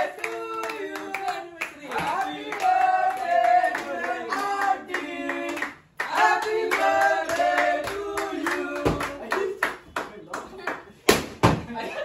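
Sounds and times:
group singing: 0.0 - 9.5
rhythmic hand clapping: 0.0 - 11.4.

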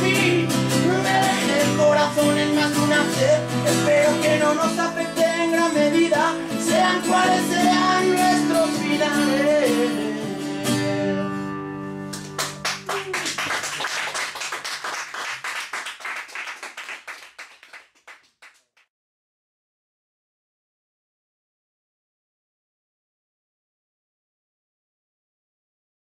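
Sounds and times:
person singing: 0.0 - 11.5
acoustic guitar: 0.0 - 13.7
hand clapping: 12.1 - 18.9.

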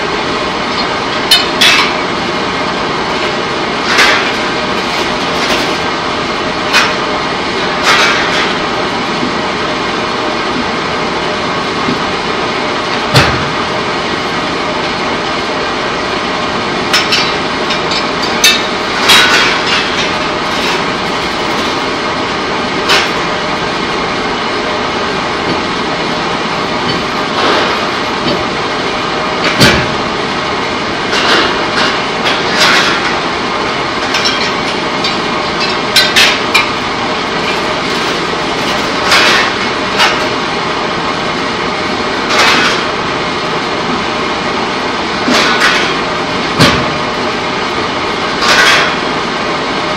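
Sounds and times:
loud machinery din: 0.0 - 15.2, 16.9 - 30.1, 31.2 - 41.2
sharp metal clanks and bangs: 1.2 - 2.0, 3.1 - 6.0, 16.9 - 22.0, 34.0 - 40.4.

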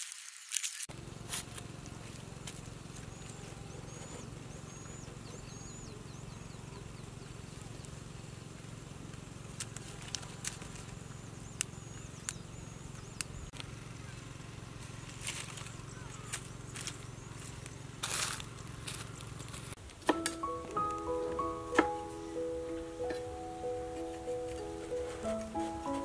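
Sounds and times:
steady low hum: 0.9 - 26.0
bird chirping: 2.9 - 8.5, 10.9 - 14.2, 20.4 - 26.0.

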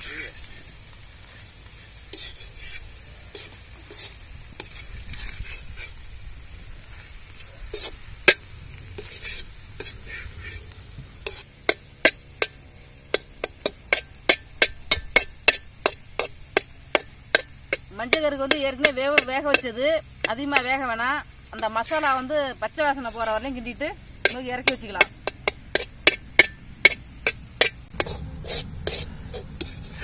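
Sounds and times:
metal spatula scraping a pan: 0.0 - 6.2, 6.9 - 30.0
faint sizzle from pan: 0.0 - 30.0
spatula tapping on pan: 11.6 - 20.7, 24.2 - 27.8.

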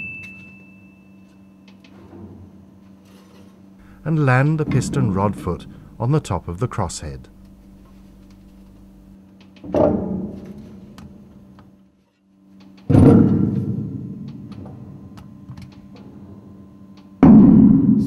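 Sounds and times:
deep drum hits: 3.8 - 9.2, 12.9 - 14.3, 17.2 - 18.0
sustained low tone: 3.8 - 9.2.

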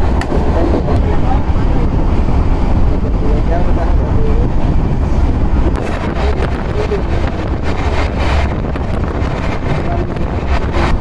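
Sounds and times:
train rumbling: 0.0 - 11.0
wind buffeting microphone: 0.0 - 11.0
faint voices: 0.3 - 8.2.

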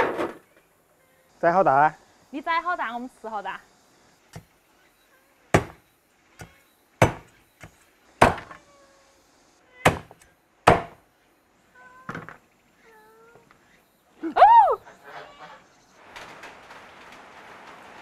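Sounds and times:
cleaver chopping on board: 10.7 - 11.0.

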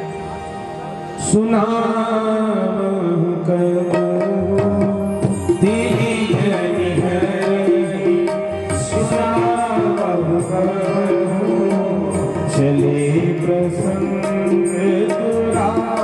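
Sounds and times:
harmonium chords: 0.0 - 16.0
tabla drumming: 2.6 - 16.0.

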